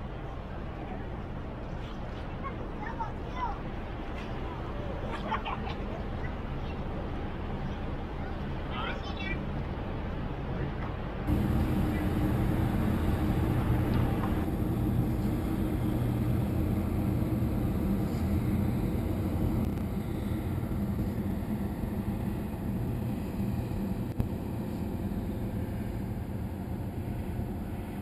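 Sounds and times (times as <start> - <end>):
ship diesel engines droning: 11.3 - 28.0.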